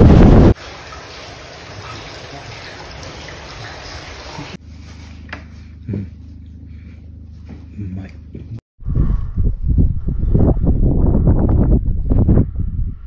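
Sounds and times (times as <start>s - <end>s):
wind buffeting microphone: 0.0s - 0.6s, 8.8s - 13.0s
low hum: 4.6s - 13.0s.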